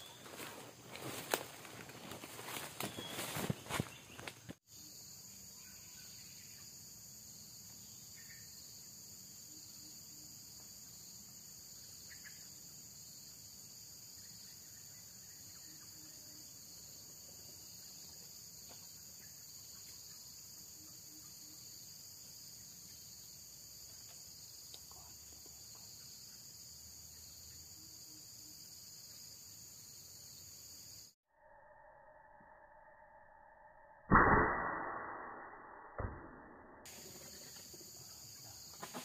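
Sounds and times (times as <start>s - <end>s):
shrill insect chorus: 0.0s - 34.1s, 36.9s - 39.0s.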